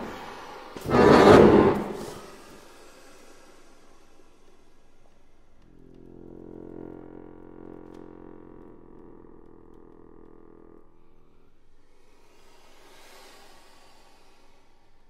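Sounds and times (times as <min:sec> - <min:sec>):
soft airy hiss: 0:01.8 - 0:05.6, 0:11.7 - 0:15.0
accordion low chord: 0:05.6 - 0:11.7.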